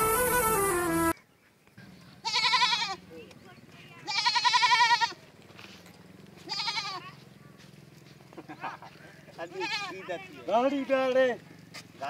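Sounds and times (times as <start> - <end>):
goat bleating: 2.2 - 3.1, 3.9 - 5.2, 6.4 - 7.2, 9.3 - 10.9.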